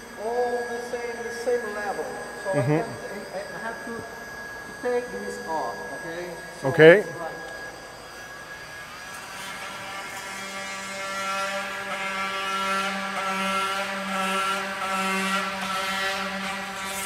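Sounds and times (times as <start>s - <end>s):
oscillating multi-tool cutting plastic: 6.7s - 17.0s.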